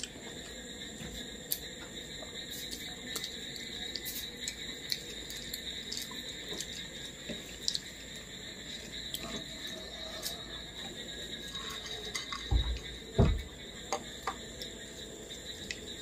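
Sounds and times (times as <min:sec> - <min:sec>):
chewing: 0:02.4 - 0:12.9.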